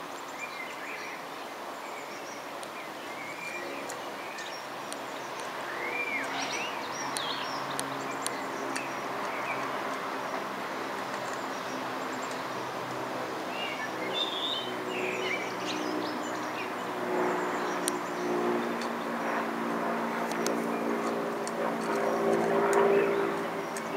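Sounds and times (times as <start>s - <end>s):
small birds chirping: 0.2s - 23.9s
distant motor drone: 1.8s - 23.9s
light sharp clicks: 7.0s - 10.1s, 17.7s - 18.1s, 20.2s - 23.9s.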